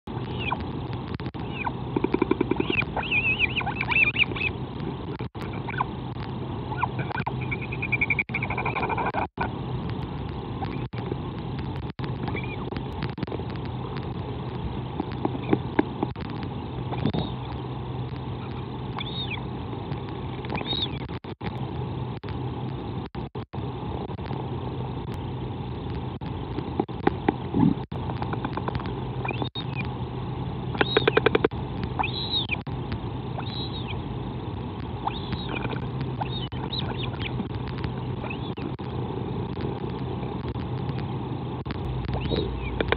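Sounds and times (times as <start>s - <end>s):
low hum: 0.1s - 42.9s
steady rushing background: 0.1s - 42.9s
albatross calls: 1.4s - 4.6s, 6.7s - 9.3s, 18.4s - 19.4s, 29.3s - 29.9s, 30.7s - 32.6s, 33.4s - 34.0s, 35.0s - 37.4s.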